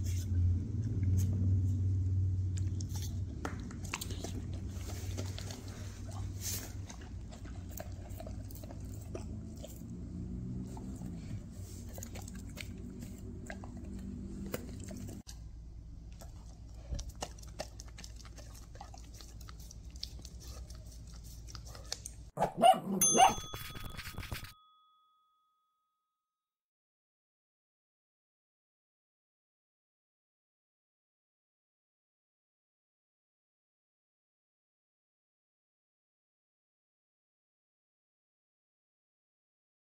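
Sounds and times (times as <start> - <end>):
dog licking wet mouth clicks: 2.5 - 5.8, 16.1 - 22.2
jingle with ringing chimes: 22.9 - 26.1.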